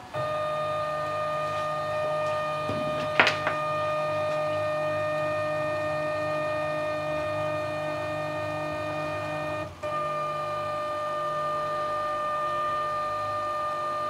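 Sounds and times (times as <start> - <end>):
stepper motors whining: 0.0 - 14.0.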